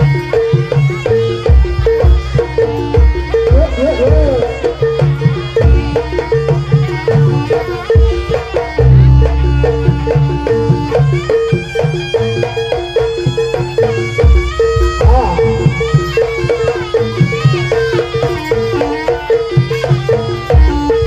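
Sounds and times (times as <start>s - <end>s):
drums beating steady rhythm: 0.0s - 21.0s
repeating pitched melody: 15.0s - 16.2s.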